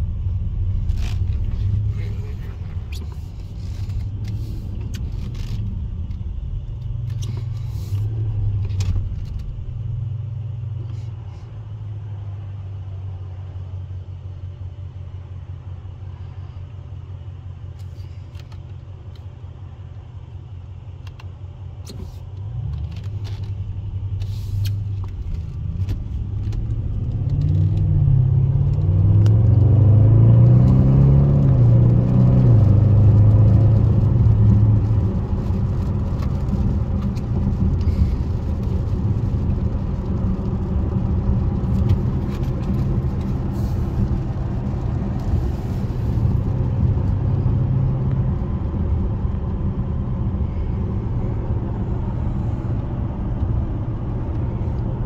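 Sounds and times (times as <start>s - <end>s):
car engine and tyre rumble: 0.0s - 55.0s
engine accelerating: 22.5s - 55.0s.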